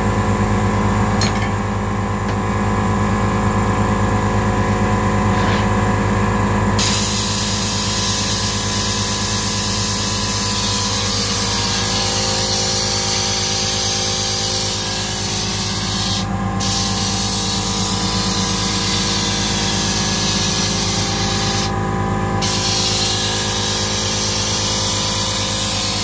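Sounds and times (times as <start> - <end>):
machine hum: 0.0 - 26.0
compressed air hissing into tyre: 6.8 - 21.7, 22.4 - 26.0.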